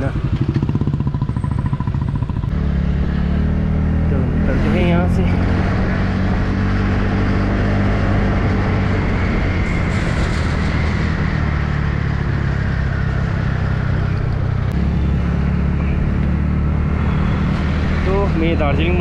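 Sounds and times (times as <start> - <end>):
scooter engine running: 0.0 - 3.7
wind and road noise: 0.0 - 19.0.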